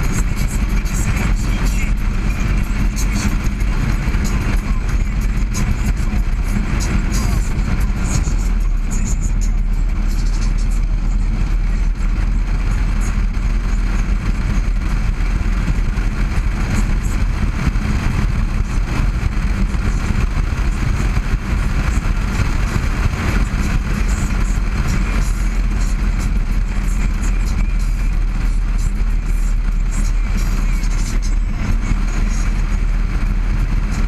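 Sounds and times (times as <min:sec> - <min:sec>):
motorcycle engine running: 0:00.0 - 0:34.0
wind noise on microphone: 0:10.8 - 0:29.3.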